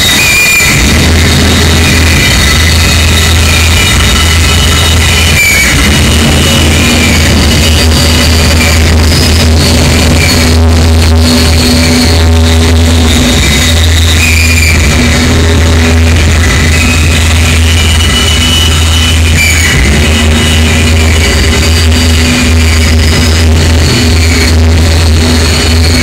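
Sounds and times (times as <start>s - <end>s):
high wavering whistling pitches: 0.0s - 26.0s
loud low drone: 0.0s - 26.0s
sustained electronic tones: 0.0s - 26.0s.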